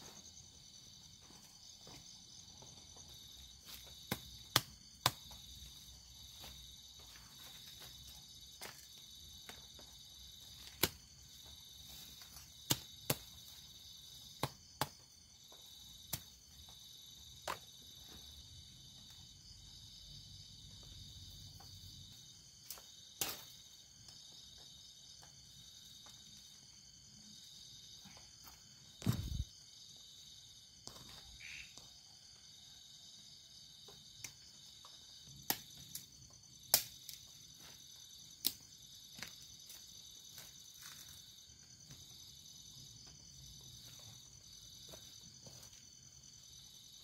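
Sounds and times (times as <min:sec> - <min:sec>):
night insects chorus: 0:00.0 - 0:47.0
tent pegs being hammered: 0:04.0 - 0:05.4, 0:14.3 - 0:15.1.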